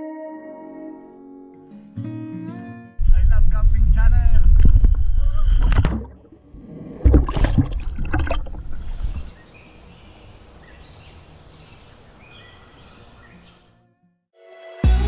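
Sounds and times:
water splashing and sloshing: 0:04.6 - 0:09.5.

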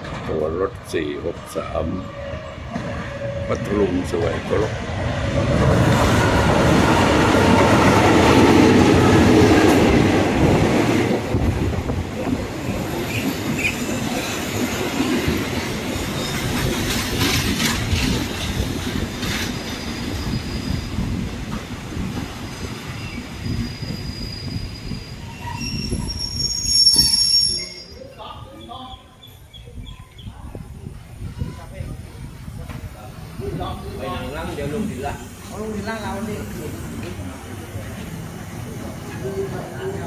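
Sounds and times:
train coaches rolling by: 0:00.0 - 0:40.0
high-pitched wheel and brake squeals: 0:19.6 - 0:21.1, 0:23.0 - 0:28.3.

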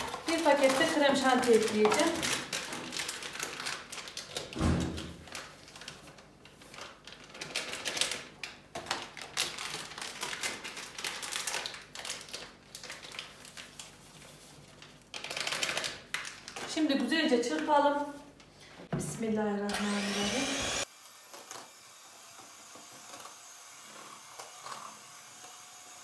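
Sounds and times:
foil sachet crinkling: 0:00.0 - 0:04.6, 0:05.2 - 0:18.2.

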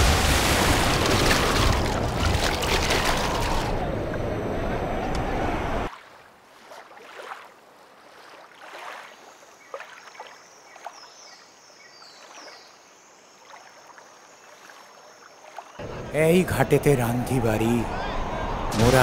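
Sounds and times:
small water splashes: 0:00.0 - 0:03.8, 0:05.9 - 0:15.8
river water lapping: 0:00.0 - 0:19.0.

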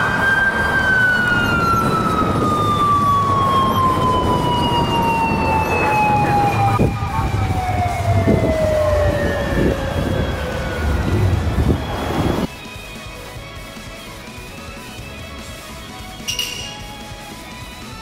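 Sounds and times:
motorcycle siren wail: 0:00.0 - 0:12.5.

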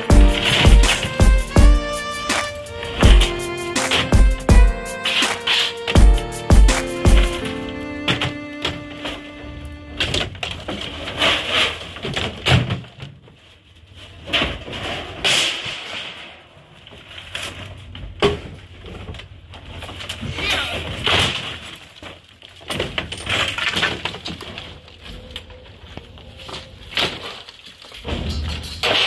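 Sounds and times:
debris crashing and clattering: 0:10.0 - 0:13.2, 0:14.2 - 0:24.9, 0:27.0 - 0:29.0.

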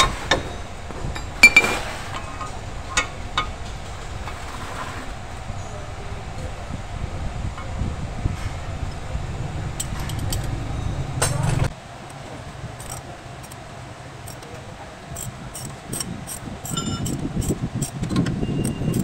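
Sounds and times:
metal tools clinking: 0:00.0 - 0:05.0, 0:08.4 - 0:11.7, 0:12.8 - 0:13.6, 0:15.2 - 0:18.0
ringing metal scrape: 0:00.0 - 0:11.7
low steady rumble: 0:00.0 - 0:19.0.

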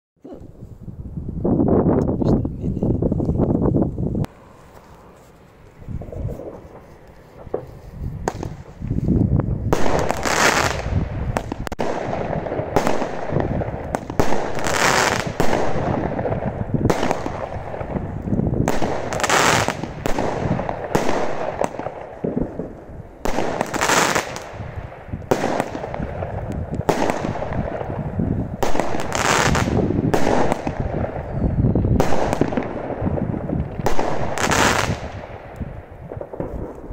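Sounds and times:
firework battery firing: 0:06.0 - 0:08.9, 0:09.6 - 0:36.9
firework bangs in the air: 0:07.4 - 0:08.8.

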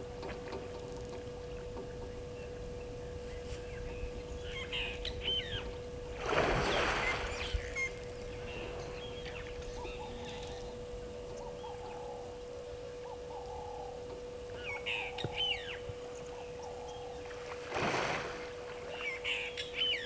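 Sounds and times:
faint steady hum: 0:00.0 - 0:20.0
birds chirping: 0:00.2 - 0:17.5, 0:18.6 - 0:20.0
elephant trunk splashing water: 0:06.2 - 0:07.5, 0:17.5 - 0:18.7.

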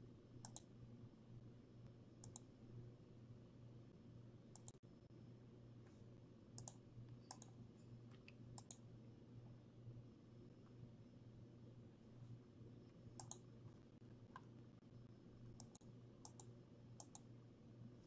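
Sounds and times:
low electrical hum: 0:00.0 - 0:18.0
computer mouse clicks: 0:00.4 - 0:00.7, 0:02.2 - 0:02.5, 0:04.5 - 0:04.8, 0:06.6 - 0:08.8, 0:13.1 - 0:13.5, 0:15.6 - 0:17.3.

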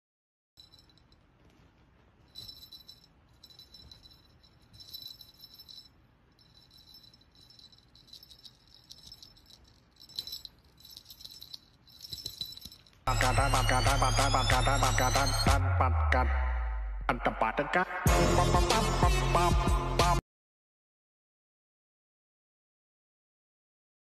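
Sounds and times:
metallic jingling: 0:00.6 - 0:01.4, 0:02.2 - 0:13.1.

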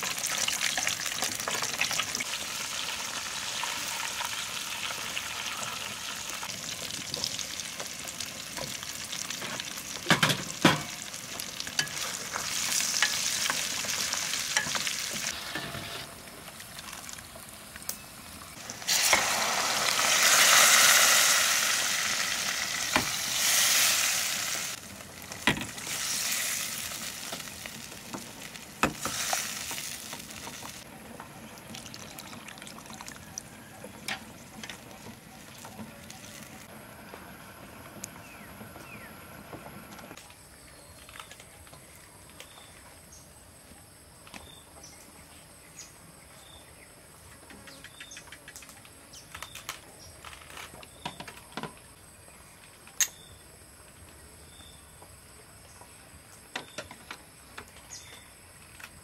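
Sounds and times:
broth being stirred and ladled: 0:18.6 - 0:36.7.

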